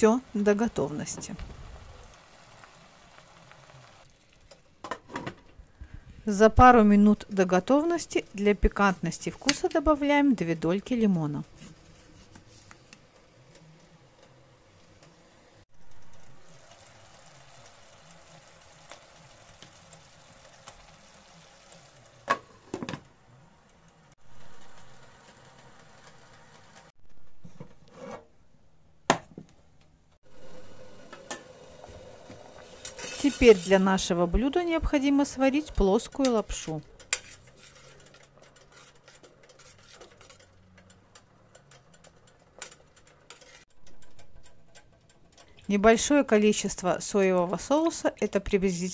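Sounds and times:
food sizzling in a frying pan: 0.0s - 4.5s, 6.9s - 26.9s, 30.2s - 39.0s.

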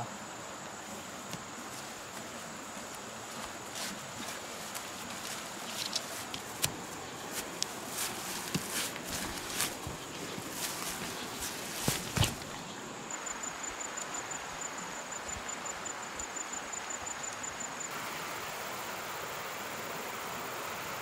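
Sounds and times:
insect trill: 0.0s - 21.0s
footsteps through grass: 0.8s - 12.8s.

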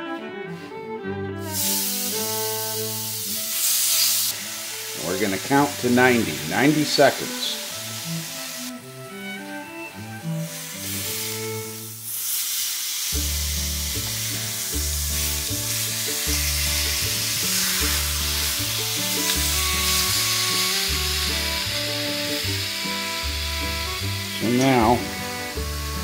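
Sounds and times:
meat sizzling in a skillet: 1.6s - 26.0s
background music with bass line: 13.2s - 26.0s.

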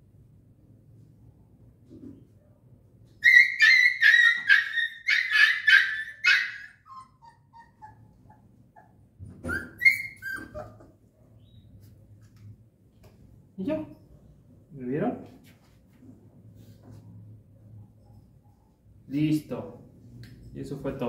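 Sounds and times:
puppy whimpering: 3.2s - 11.0s
puppy yelping: 3.2s - 11.1s.

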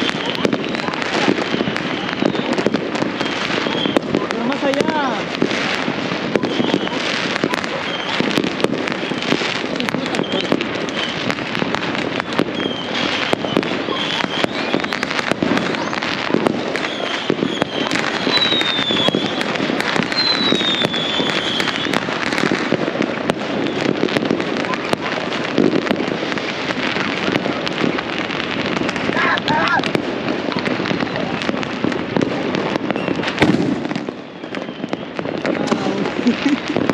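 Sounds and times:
falling firework whistles: 0.0s - 31.6s, 32.6s - 36.9s
fireworks and firecrackers banging: 0.0s - 36.9s.

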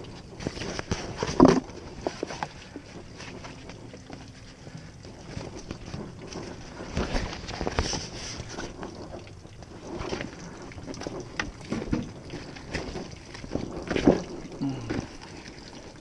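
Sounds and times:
fabric cover rustling and scraping: 0.4s - 9.0s.

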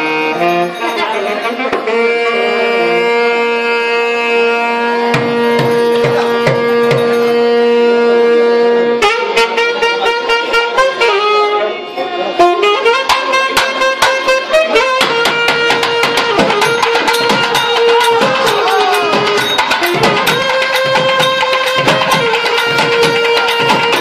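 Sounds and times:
wind instrument playing: 0.0s - 24.0s
drum beats: 4.7s - 8.4s, 12.5s - 24.0s.

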